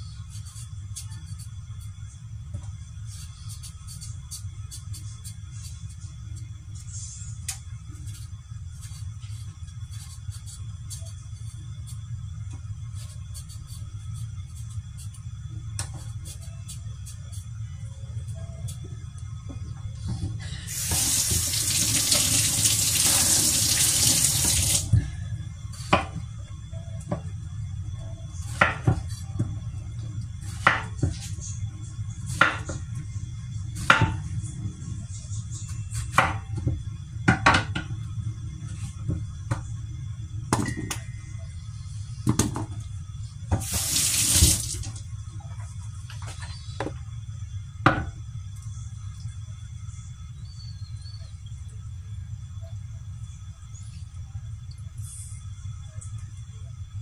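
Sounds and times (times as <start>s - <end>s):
low steady hum: 0.0s - 57.0s
tap running into sink: 43.6s - 44.8s.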